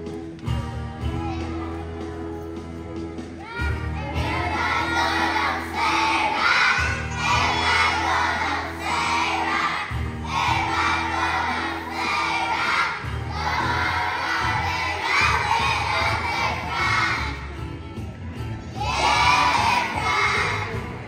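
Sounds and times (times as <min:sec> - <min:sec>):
backing music with bass line: 0:00.0 - 0:21.0
children singing loudly: 0:03.4 - 0:17.4, 0:18.8 - 0:21.0.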